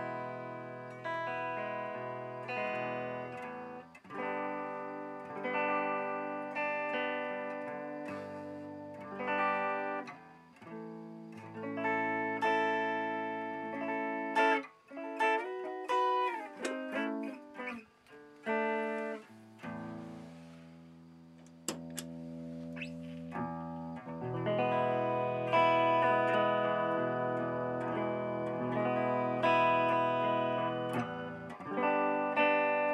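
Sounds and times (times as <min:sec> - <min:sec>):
electric guitar through effects: 0:00.0 - 0:32.9
sharp clicks: 0:21.4 - 0:22.2.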